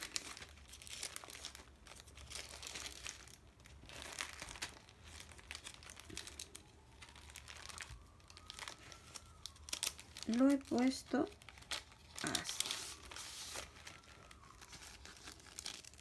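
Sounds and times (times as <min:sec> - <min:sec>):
plastic album sleeves crinkling: 0:00.0 - 0:16.0.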